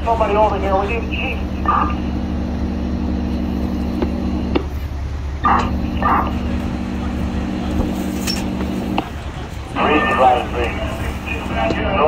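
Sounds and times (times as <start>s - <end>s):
diesel engines idling: 0.0s - 12.0s
steady hum: 0.0s - 12.0s.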